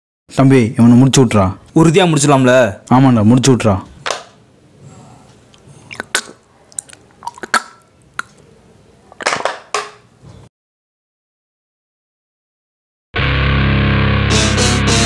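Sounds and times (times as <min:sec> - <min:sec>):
people drinking and chewing: 0:04.8 - 0:09.3
mouth clicks and smacks: 0:05.3 - 0:08.5.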